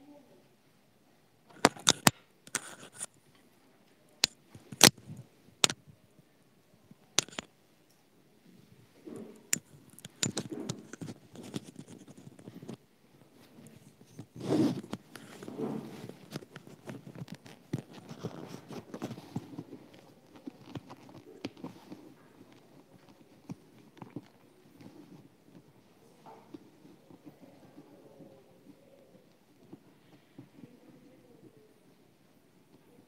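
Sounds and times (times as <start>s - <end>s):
sharp clicks and knocks: 1.5s - 3.1s, 4.2s - 5.0s, 7.2s - 7.5s, 9.1s - 12.8s
rustling handling noise: 1.5s - 5.8s, 7.1s - 7.5s, 8.5s - 33.0s.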